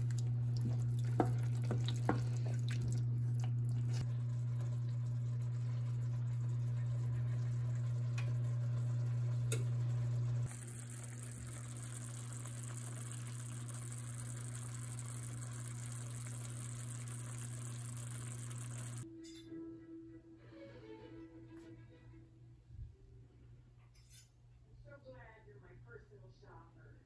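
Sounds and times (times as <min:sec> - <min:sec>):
sauce simmering with soft sizzle: 0:00.0 - 0:19.0
steady low hum: 0:00.0 - 0:27.0.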